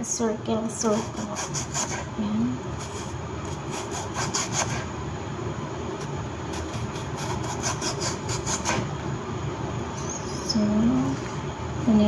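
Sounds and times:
knife slicing onion on board: 0:02.8 - 0:04.9, 0:06.5 - 0:08.9.

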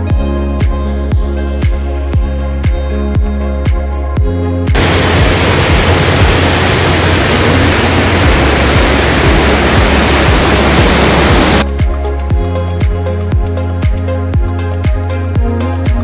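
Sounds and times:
water rushing through dam outlet: 0:04.8 - 0:11.6.

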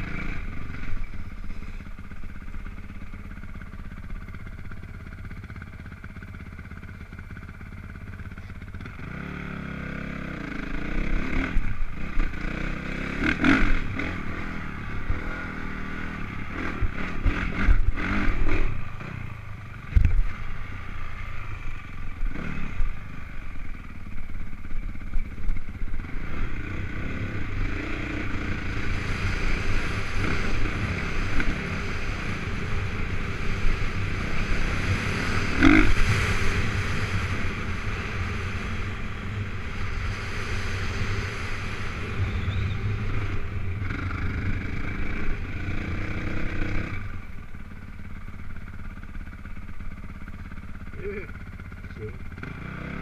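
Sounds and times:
dirt bike engine revving: 0:00.0 - 0:02.8, 0:08.8 - 0:23.7, 0:25.8 - 0:47.5, 0:50.3 - 0:53.0.

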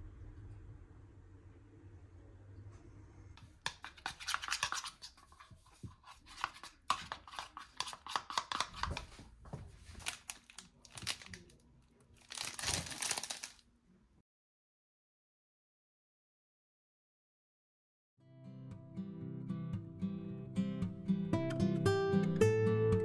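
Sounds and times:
fork whisking liquid in plastic bowl: 0:03.4 - 0:09.3.

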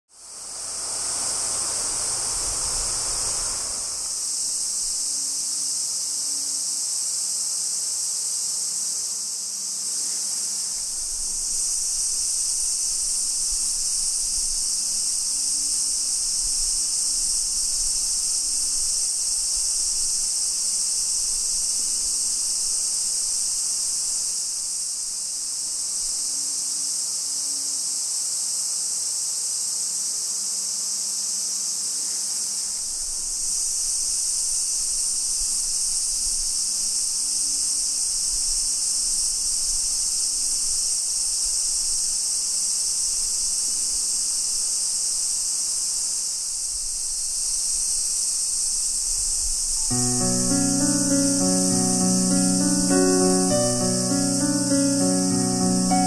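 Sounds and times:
insects chorus: 0:00.1 - 0:56.0
brief rush of low noise: 0:00.4 - 0:04.3.

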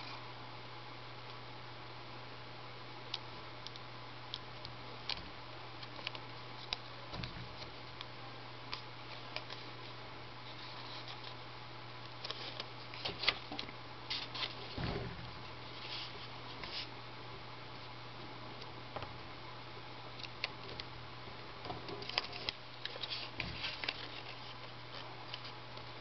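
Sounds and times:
steady low hum: 0:00.0 - 0:26.0
paper crinkling as folded: 0:12.1 - 0:14.8, 0:21.9 - 0:25.6
soft thumps: 0:14.8 - 0:15.6.

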